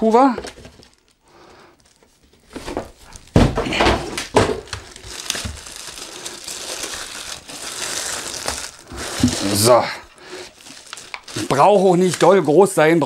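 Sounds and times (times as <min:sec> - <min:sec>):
plastic bag crinkling: 0:00.1 - 0:13.0.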